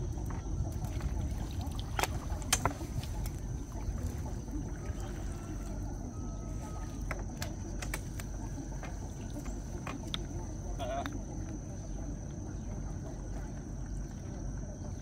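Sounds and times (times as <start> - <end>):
water trickling and splashing: 0.0 - 11.3
steady low rumble: 0.0 - 15.0.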